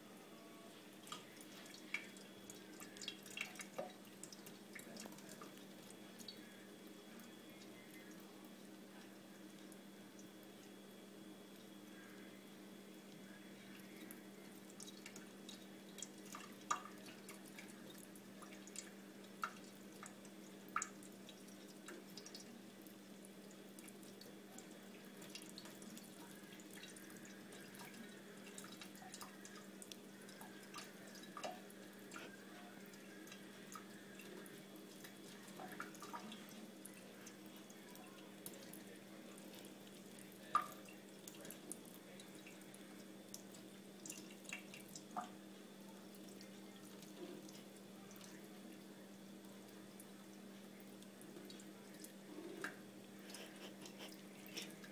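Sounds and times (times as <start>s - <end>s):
water drips and splashes: 1.0s - 6.6s, 13.1s - 54.9s
tap water trickling into sink: 40.4s - 42.6s.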